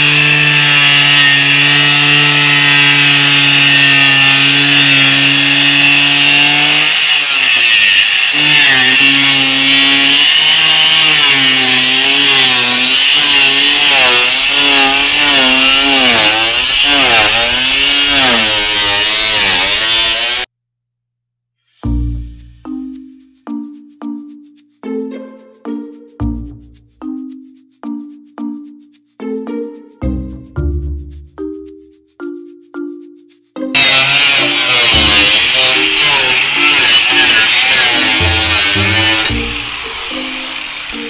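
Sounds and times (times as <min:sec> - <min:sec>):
angle grinder cutting metal: 0:00.0 - 0:20.5, 0:33.7 - 0:41.0.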